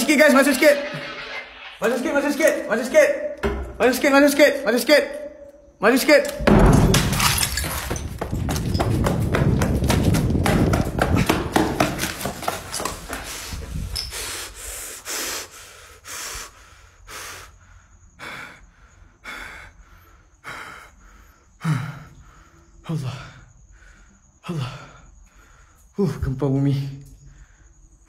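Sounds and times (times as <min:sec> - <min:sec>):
man breathing hard and gasping: 0:13.2 - 0:22.8.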